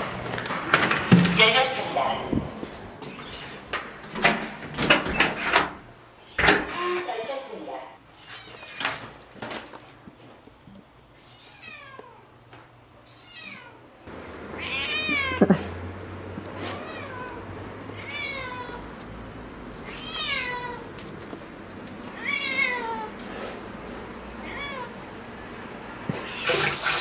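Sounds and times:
cat meowing: 0:03.1 - 0:03.7, 0:11.2 - 0:12.2, 0:13.0 - 0:13.9, 0:14.6 - 0:15.5, 0:16.7 - 0:18.9, 0:19.8 - 0:20.9, 0:22.2 - 0:23.2, 0:24.4 - 0:25.0.

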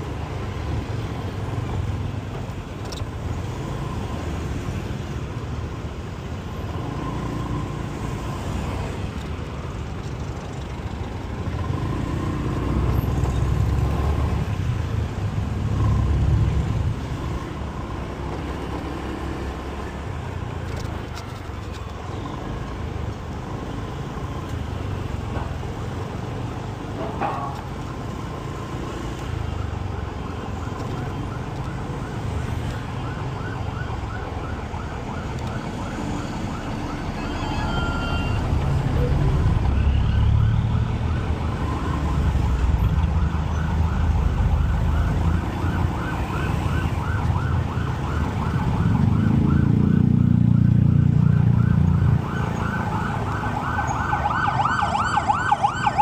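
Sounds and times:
street traffic: 0:00.0 - 0:56.0.

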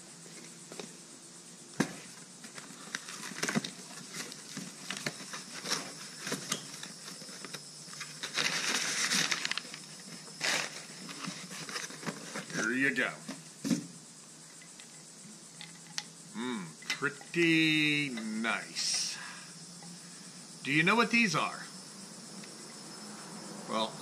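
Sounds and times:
packing paper rustling: 0:02.8 - 0:12.7.

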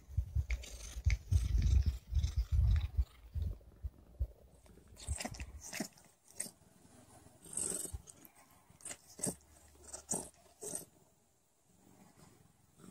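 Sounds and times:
cat licking: 0:05.0 - 0:06.6.

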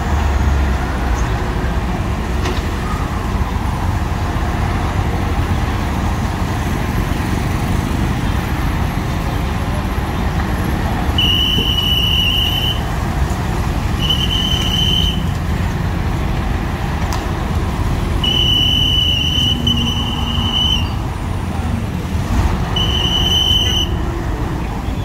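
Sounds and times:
heavy vehicle engines rumbling: 0:00.0 - 0:25.0
road traffic: 0:00.0 - 0:25.0.

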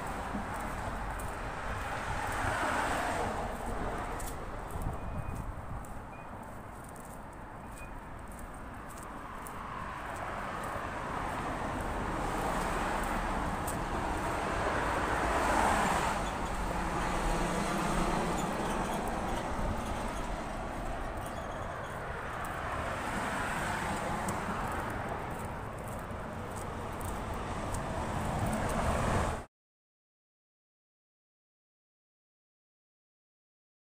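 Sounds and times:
low traffic rumble: 0:00.0 - 0:29.5
vehicles passing: 0:00.0 - 0:29.5.

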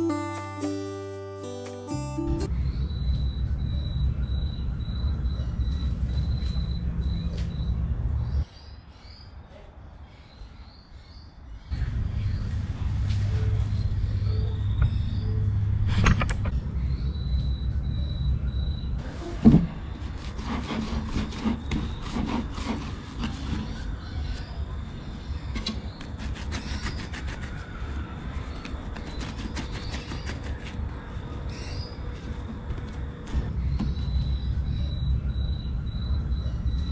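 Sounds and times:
steady low rumble: 0:02.5 - 0:08.5, 0:11.7 - 0:19.1, 0:30.9 - 0:36.9
dough squishing as kneaded: 0:20.0 - 0:24.5.

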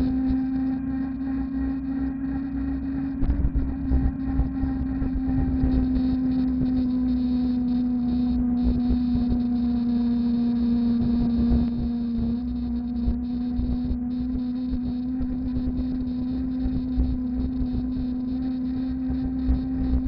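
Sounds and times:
electric bike motor whining: 0:00.0 - 0:20.0.

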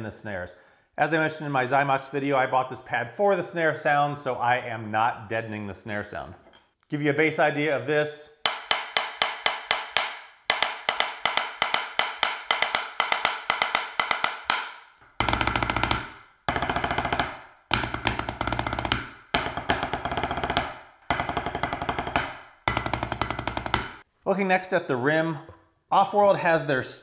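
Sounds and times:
drumsticks on practice pad: 0:08.4 - 0:24.0.

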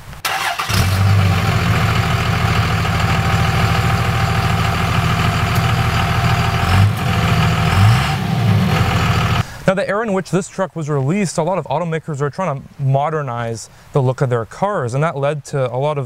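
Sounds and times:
diesel engine idling: 0:00.3 - 0:09.4.

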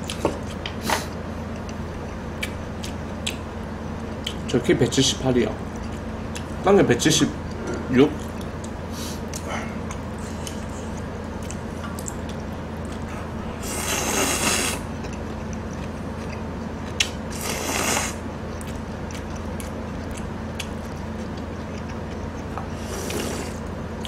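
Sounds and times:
steady low hum: 0:00.0 - 0:24.0
chewing close to microphone: 0:07.4 - 0:24.0.

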